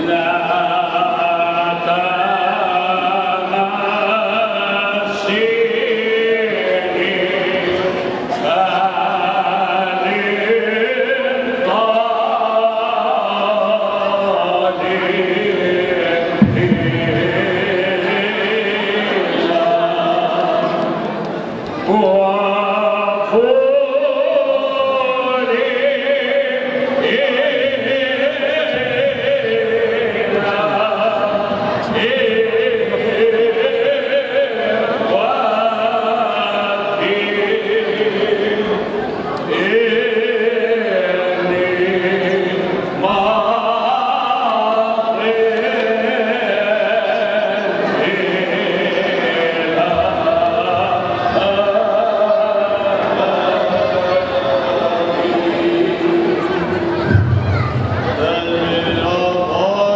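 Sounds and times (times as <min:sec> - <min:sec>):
voices chanting: 0:00.0 - 0:59.9.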